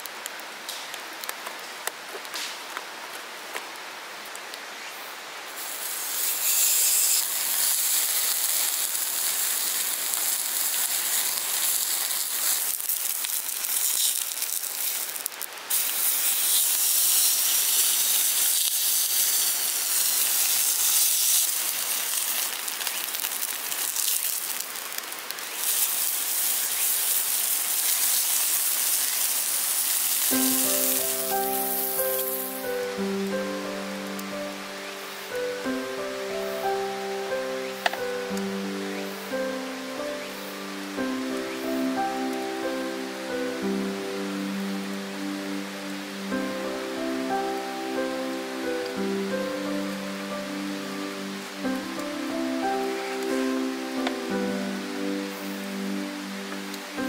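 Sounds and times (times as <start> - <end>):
campfire crackling: 0.0 - 57.0
steak sizzling on griddle: 5.5 - 39.3.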